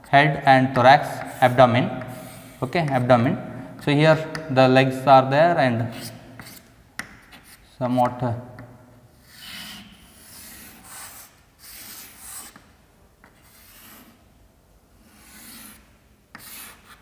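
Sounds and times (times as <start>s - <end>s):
chalk strokes on chalkboard: 1.0s - 3.0s, 5.9s - 6.7s, 9.2s - 12.7s, 13.3s - 14.2s, 15.0s - 17.0s.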